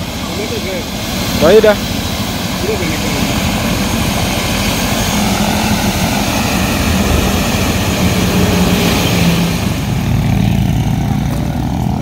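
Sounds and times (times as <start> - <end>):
helicopter rotor chopping: 0.0 - 12.0.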